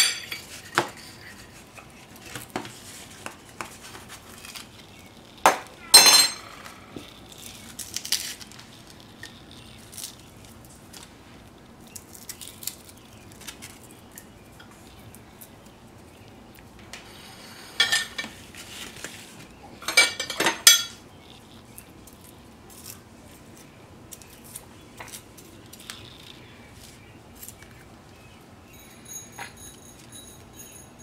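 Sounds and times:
metal spoon scraping a plate: 17.1 - 18.4.

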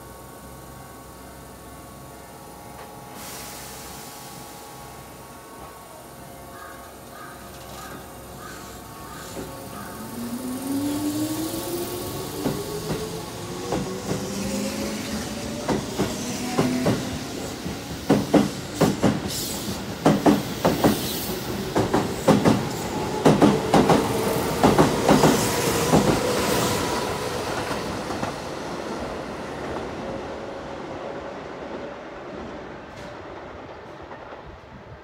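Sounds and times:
train wheels clacking over rail joints: 15.5 - 26.3.

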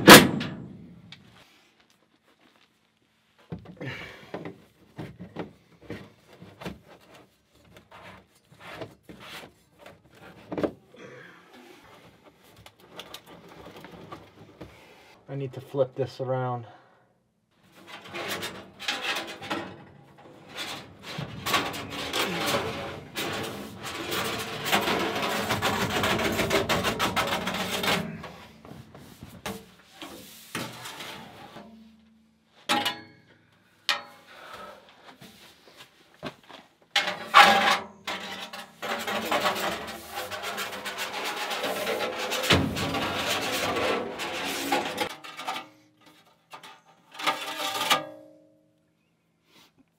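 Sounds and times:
metal knocks and clatters: 0.0 - 1.1, 17.7 - 29.8, 36.9 - 48.2
sheet metal duct scraping: 17.6 - 32.0, 37.0 - 48.1.

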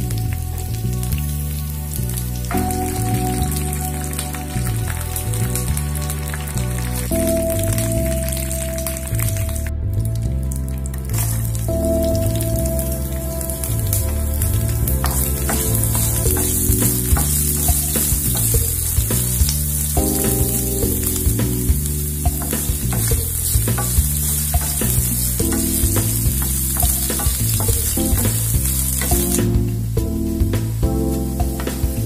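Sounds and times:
garlic sizzling in hot oil: 11.1 - 30.0.

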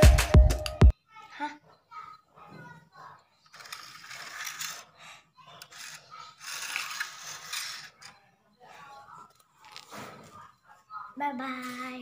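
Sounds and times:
plastic bricks clicking and rattling: 3.5 - 4.8.

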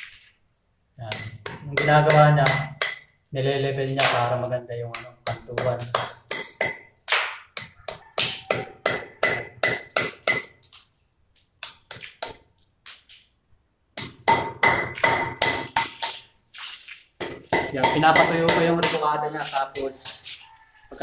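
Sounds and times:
hammer striking metal: 1.1 - 3.2, 4.9 - 10.6, 11.6 - 12.4, 14.0 - 16.3, 17.2 - 20.2.

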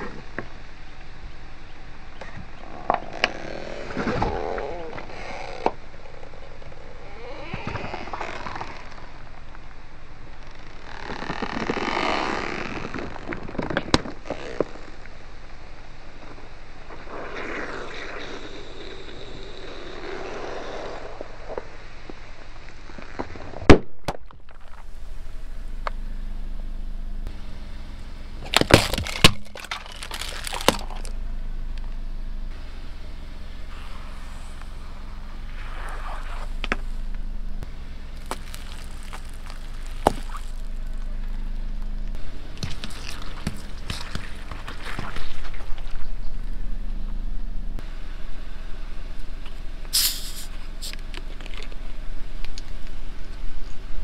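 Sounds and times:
vehicle hum: 0.0 - 54.0
creaking squeaks: 2.2 - 9.4
objects cracking under tyre: 2.2 - 15.2, 28.4 - 31.2, 35.4 - 46.6.

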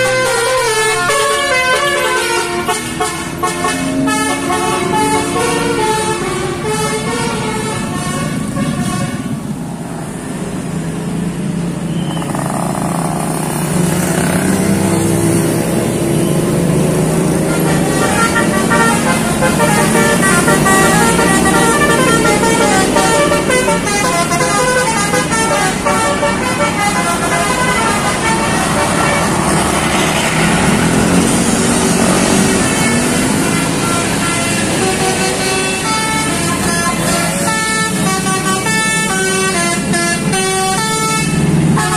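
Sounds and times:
musical bus horn tune: 0.0 - 9.5, 17.2 - 29.6, 32.1 - 41.9
motorcycles and vehicles passing: 0.0 - 41.9.

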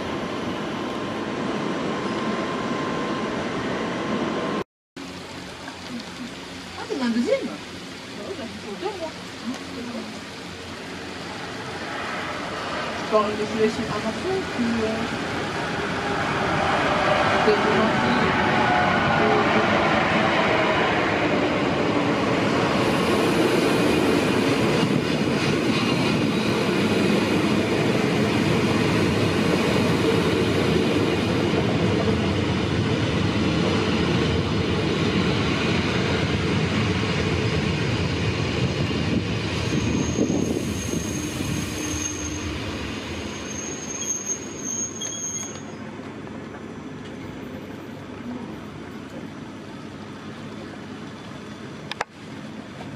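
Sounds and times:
train rolling and braking: 0.0 - 52.9
high brake squeal: 39.6 - 45.9.

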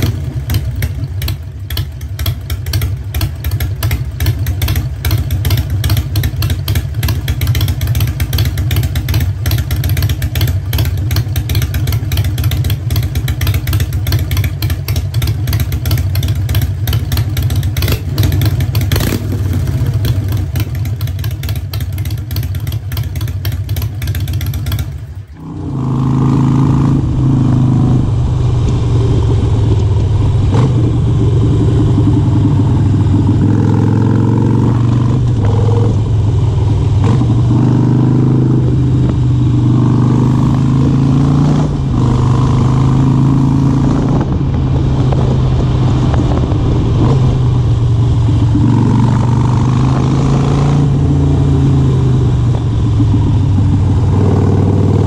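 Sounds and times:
motorcycle engine idling: 0.0 - 26.0, 29.1 - 33.7, 52.4 - 55.0
motorcycle riding on road: 0.0 - 55.0.

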